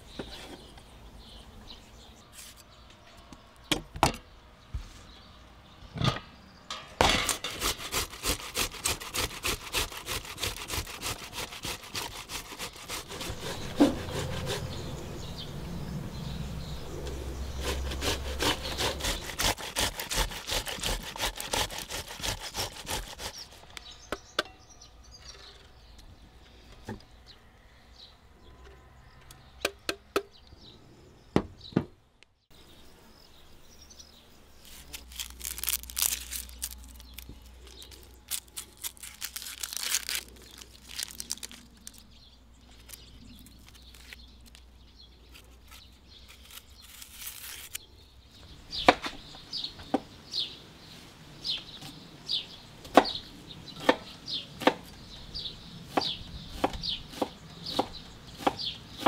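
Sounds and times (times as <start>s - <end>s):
knife scraping onion: 7.2s - 14.7s, 17.6s - 23.6s, 45.3s - 47.8s
knife chopping on wooden board: 55.9s - 59.0s.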